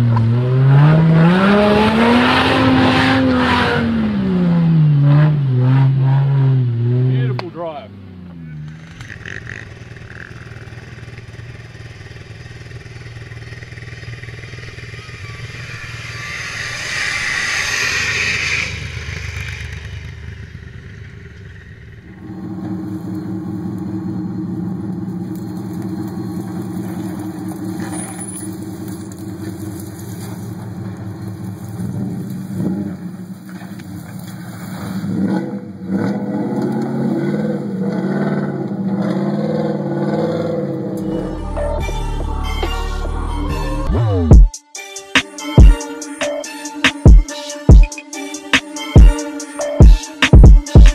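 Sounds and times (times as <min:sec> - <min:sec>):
quad engine revving: 0:00.0 - 0:44.4
pickup truck engine under load: 0:08.1 - 0:41.7.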